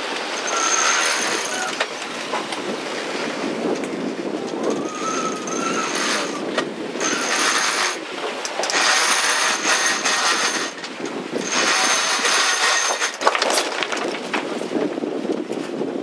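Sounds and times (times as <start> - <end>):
rushing water: 0.0 - 14.8
wind: 0.0 - 16.0.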